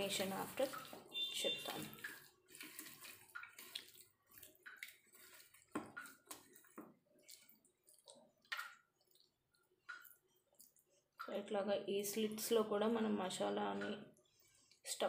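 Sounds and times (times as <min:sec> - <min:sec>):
hands squishing wet chicken: 0:00.0 - 0:11.4.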